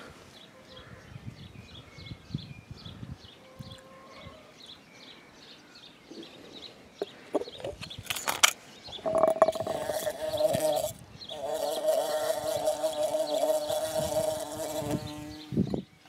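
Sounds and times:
glass knocking on concrete: 9.0 - 9.9
bumblebee buzzing in a glass: 9.0 - 15.8.

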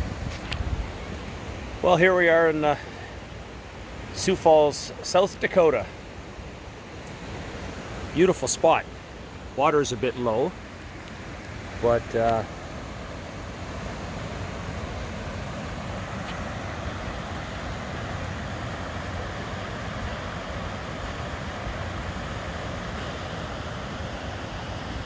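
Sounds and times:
waterfall rushing: 0.8 - 25.0.

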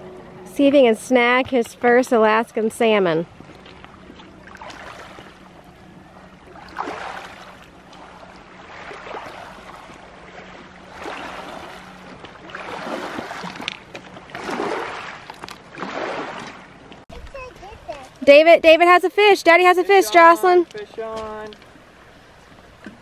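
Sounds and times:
rushing water and wind: 0.0 - 23.0.

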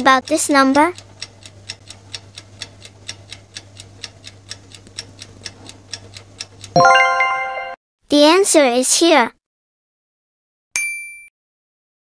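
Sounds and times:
clock ticking: 0.0 - 7.4
bell-like chime: 6.8 - 7.8.

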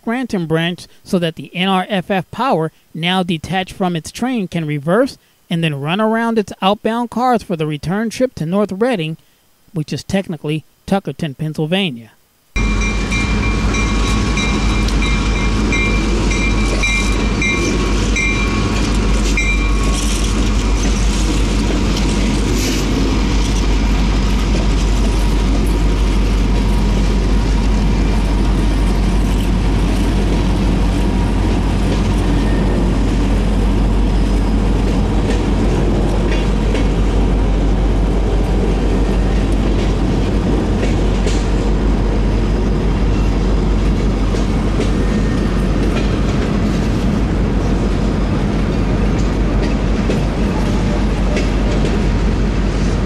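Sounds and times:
high-pitched tones: 12.6 - 18.8
freight train rumbling: 12.6 - 53.0
wheels clacking over rail joints: 43.1 - 52.9.

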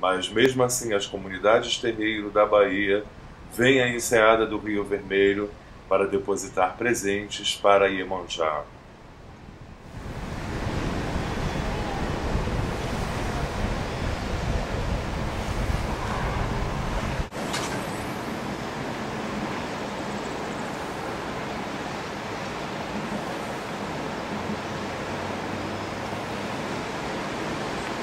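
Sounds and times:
distant traffic: 0.0 - 28.0
sea rushing: 0.0 - 28.0
wind buffeting microphone: 9.0 - 28.0.

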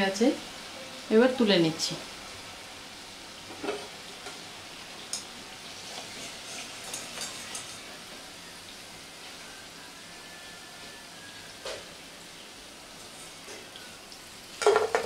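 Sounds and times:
food sizzling in hot oil: 0.0 - 15.0.

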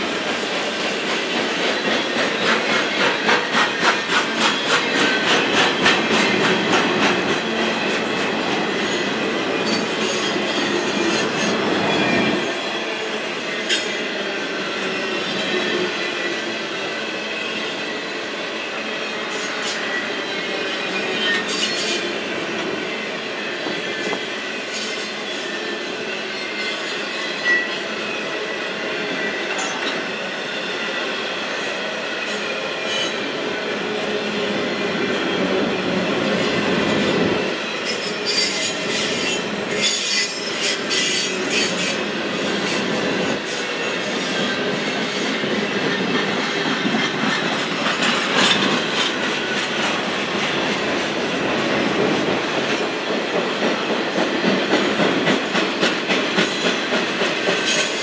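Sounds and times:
train wheels rumbling on rail: 0.0 - 58.0
wheel squeal: 19.4 - 22.1, 37.8 - 42.0.

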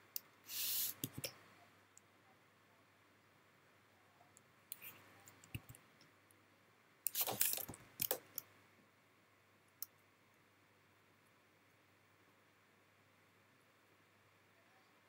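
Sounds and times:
light clicks and taps: 4.3 - 6.1.

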